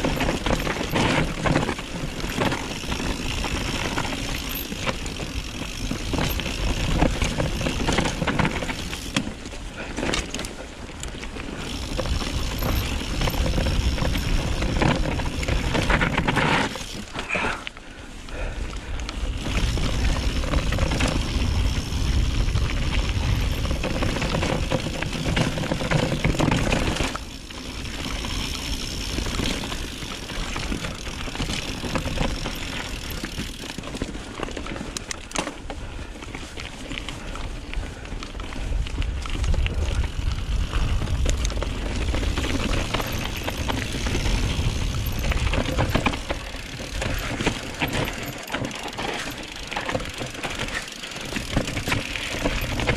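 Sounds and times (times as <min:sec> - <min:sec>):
bike rattling and crunching: 0:00.0 - 0:52.9
wind buffeting microphone: 0:37.9 - 0:48.0.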